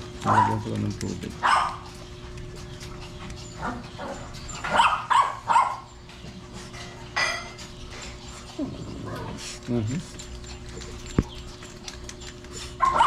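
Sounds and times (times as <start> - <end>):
puppies high cries: 1.4 - 6.2, 10.8 - 13.0
puppies yipping and whimpering: 1.4 - 13.0.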